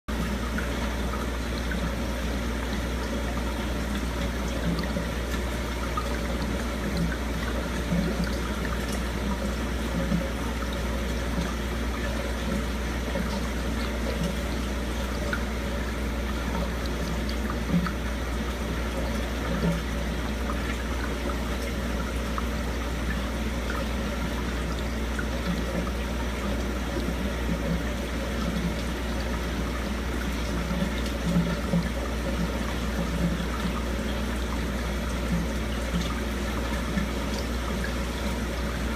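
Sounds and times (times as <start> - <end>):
water trickling and gurgling: 0.1 - 38.9.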